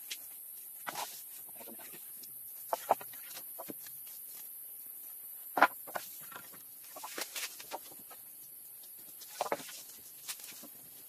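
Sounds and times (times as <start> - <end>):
wooden poles knocking together: 0.8 - 4.0, 5.5 - 8.3, 8.9 - 10.9.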